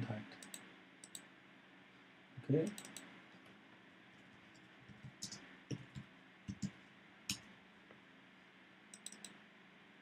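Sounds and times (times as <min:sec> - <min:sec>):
computer keyboard clicks: 0:00.4 - 0:01.2, 0:02.7 - 0:03.1, 0:04.9 - 0:07.4, 0:08.9 - 0:09.4.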